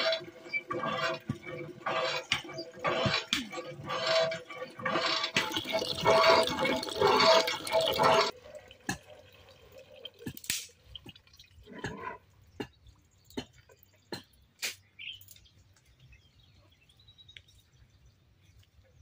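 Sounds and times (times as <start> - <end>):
pumped water gushing into bucket: 0.0 - 11.7
water drips and splashes: 0.0 - 13.4.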